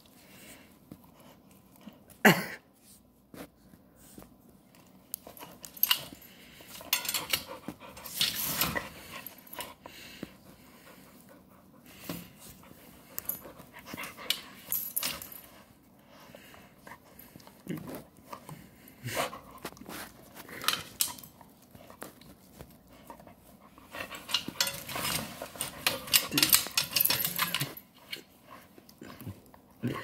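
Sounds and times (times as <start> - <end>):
puppy panting and snuffling: 5.1 - 30.0.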